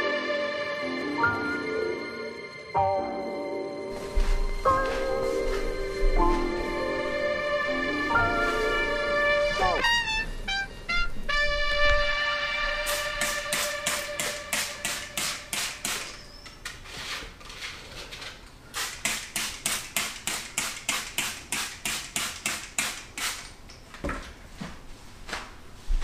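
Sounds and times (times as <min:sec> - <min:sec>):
spray bottle spritzing: 0:12.9 - 0:16.3, 0:18.7 - 0:23.6.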